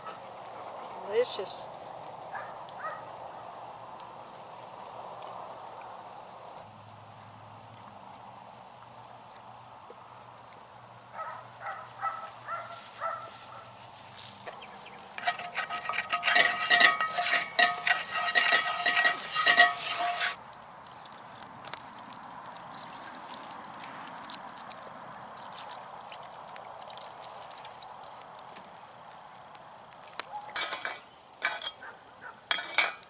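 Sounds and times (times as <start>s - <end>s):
faint crackles: 11.7s - 33.0s
wooden spatula scraping skillet: 14.2s - 20.4s, 30.6s - 31.8s, 32.5s - 33.0s
high pitched squeaks: 15.2s - 20.4s
water sizzling in hot skillet: 15.2s - 20.4s.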